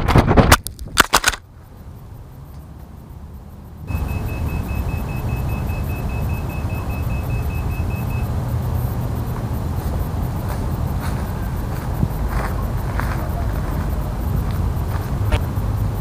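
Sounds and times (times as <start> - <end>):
rushing noise with low rumble: 0.0 - 16.0
short high beeps: 3.9 - 8.3.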